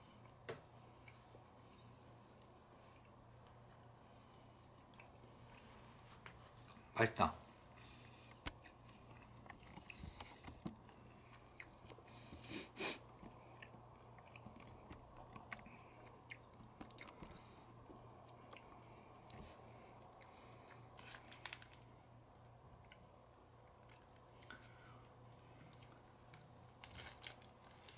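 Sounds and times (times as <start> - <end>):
faint low hum: 0.0 - 27.9
person chewing crunchy snack: 13.5 - 17.5.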